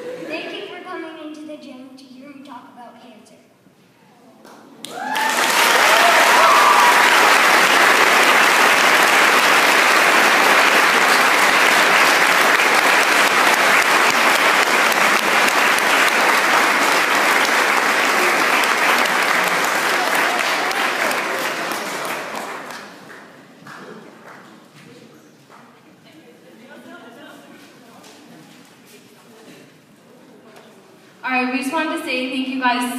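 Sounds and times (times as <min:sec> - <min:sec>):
audience applause: 0:04.8 - 0:24.6.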